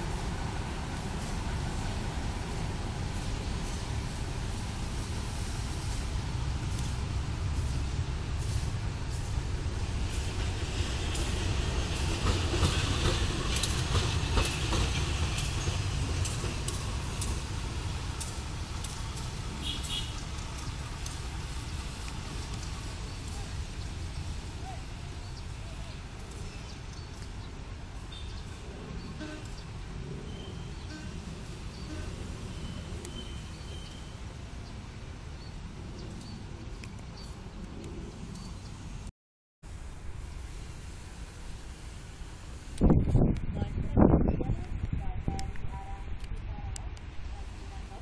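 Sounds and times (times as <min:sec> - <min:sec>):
locomotive engine rumble: 0:00.0 - 0:33.5
wheels clicking over rail joints: 0:06.2 - 0:28.6.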